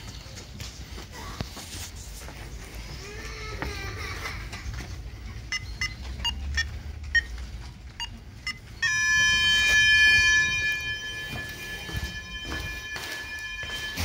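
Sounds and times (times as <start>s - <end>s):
short electronic beeps: 8.0s - 14.0s
steady multi-pitched electronic tone: 8.5s - 14.0s.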